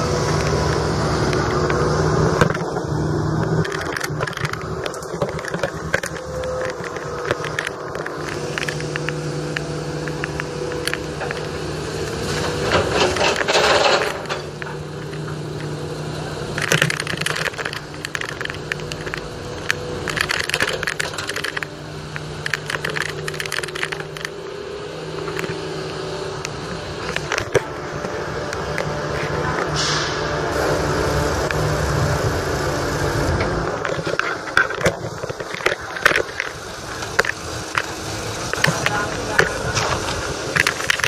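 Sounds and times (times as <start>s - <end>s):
diesel engine running: 0.0s - 41.0s
scrapes clinks and knocks: 12.3s - 15.7s.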